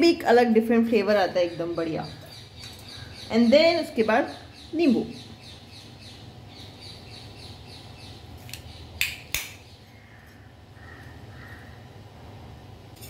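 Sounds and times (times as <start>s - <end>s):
birds chirping faintly: 0.0s - 12.1s.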